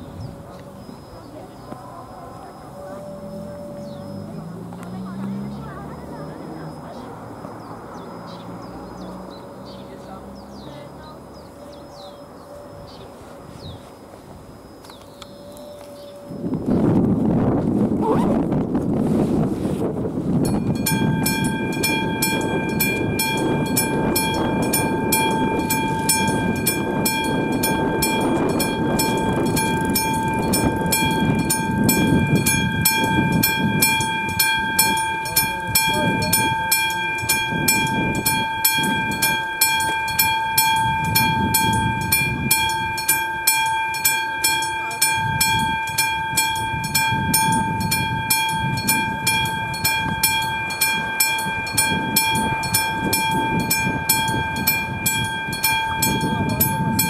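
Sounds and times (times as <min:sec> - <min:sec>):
level-crossing bell ringing: 0:20.5 - 0:57.0.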